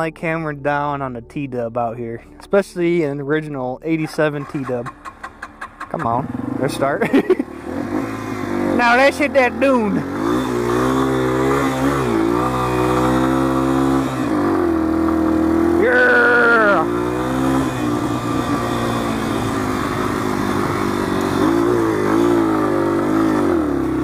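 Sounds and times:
motorcycle engine revving: 4.4 - 24.0.

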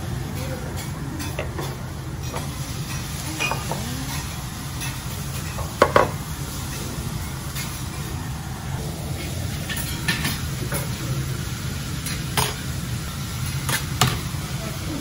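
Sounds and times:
faint sizzle: 0.0 - 15.0
metal utensils clinking on griddle: 0.3 - 8.1, 9.2 - 11.1, 12.0 - 12.6.

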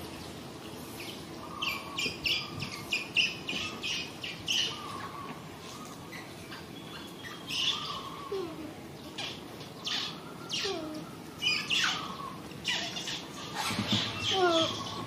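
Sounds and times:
outdoor background: 0.0 - 15.0
harsh animal squawks: 11.5 - 15.0.

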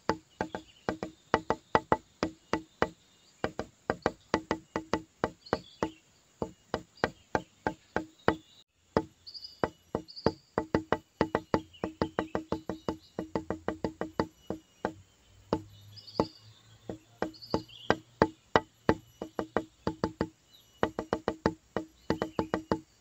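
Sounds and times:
background music with clicking beat: 10.7 - 15.7, 16.9 - 22.9.

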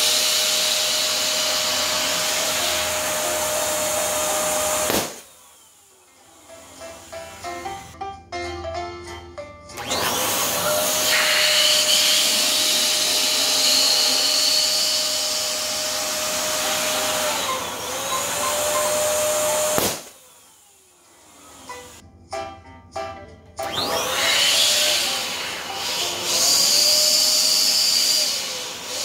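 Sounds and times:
electric balloon pump running: 0.0 - 7.9, 9.8 - 22.0, 23.6 - 29.0
balloon bursting pop: 4.8 - 5.2, 19.7 - 20.2.

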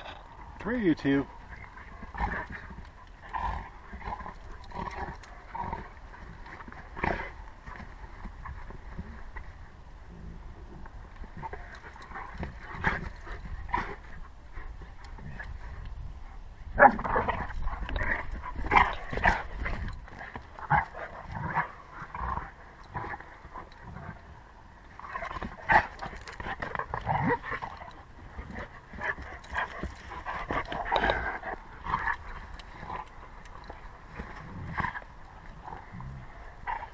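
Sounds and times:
dogs growling whining and yipping: 1.4 - 9.1, 16.7 - 36.9.

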